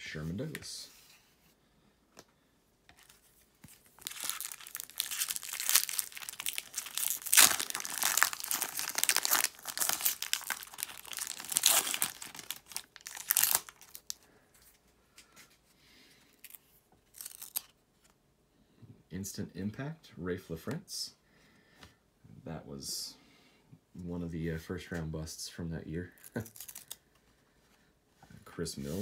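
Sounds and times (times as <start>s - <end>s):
foil wrapper tearing and crinkling: 3.7s - 14.2s, 16.4s - 17.7s, 26.2s - 27.0s.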